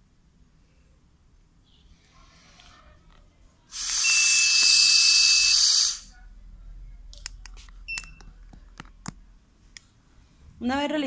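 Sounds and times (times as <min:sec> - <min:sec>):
person blowing into breathalyzer: 0:03.7 - 0:06.1
steady high beep: 0:03.8 - 0:06.0.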